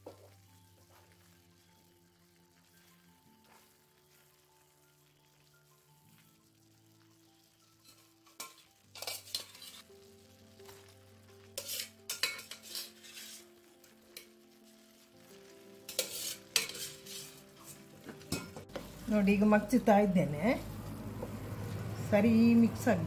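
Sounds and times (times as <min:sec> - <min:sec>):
food sizzling in a pan: 0:00.0 - 0:23.0
utensils clattering against pan: 0:07.8 - 0:09.9, 0:11.5 - 0:14.4, 0:15.9 - 0:18.9.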